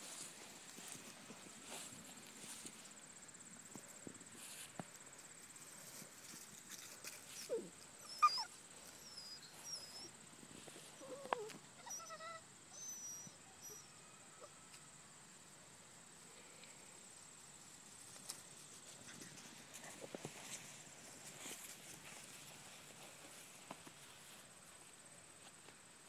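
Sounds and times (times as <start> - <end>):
puppies yipping: 7.4 - 10.1.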